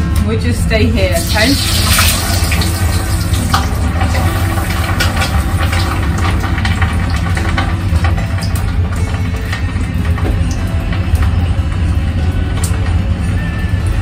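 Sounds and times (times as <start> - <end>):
extractor fan humming: 0.0 - 14.0
oil frying in a pan: 1.0 - 13.0.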